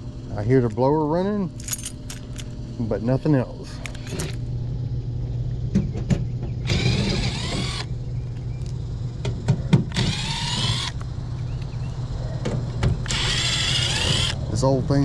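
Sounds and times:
cordless drill whining: 6.6 - 7.9, 9.9 - 11.0, 13.0 - 14.4.

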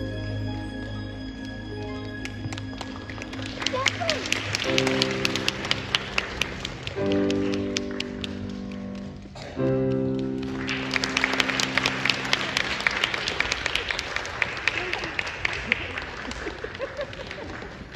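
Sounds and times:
sustained keyboard chords: 0.0 - 13.2
audience clapping: 1.4 - 17.9.

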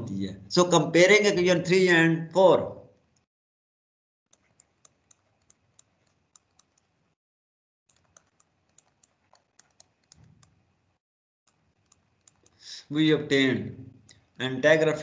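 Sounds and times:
pen clicking and tapping: 4.3 - 7.0, 7.9 - 10.6.

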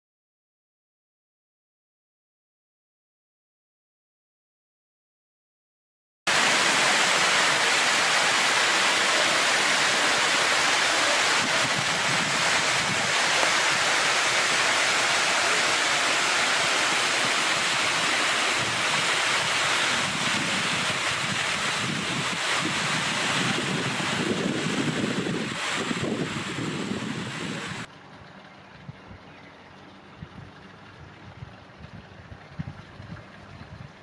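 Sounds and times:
steady rushing hiss: 6.3 - 27.9.

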